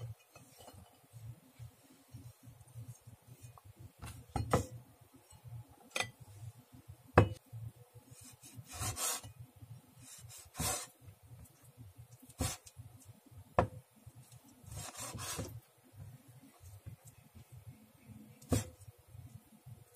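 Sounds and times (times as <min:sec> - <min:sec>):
knife scraping on cutting board: 0:08.2 - 0:09.3, 0:14.7 - 0:15.6.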